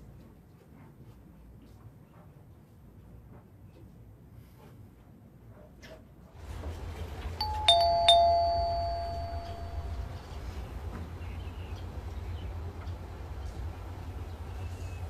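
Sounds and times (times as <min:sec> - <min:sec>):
doorbell ding-dong chime: 0:07.4 - 0:10.1
steady low hum: 0:07.4 - 0:15.0.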